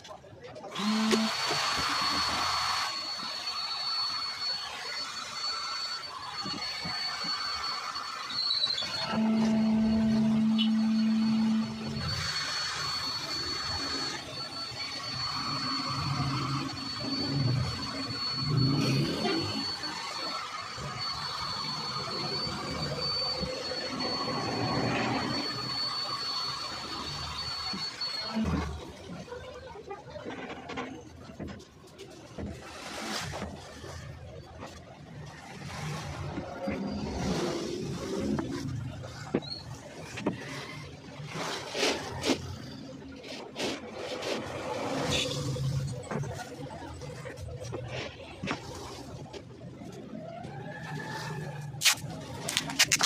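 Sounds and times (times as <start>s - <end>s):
heat gun whine and airflow: 0.7s - 28.0s.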